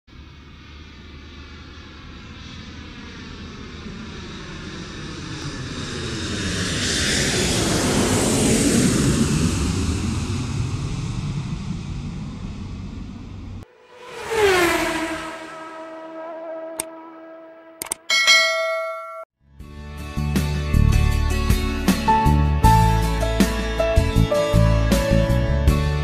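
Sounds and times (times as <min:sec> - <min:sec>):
jet airliner flying past: 0:00.1 - 0:17.8.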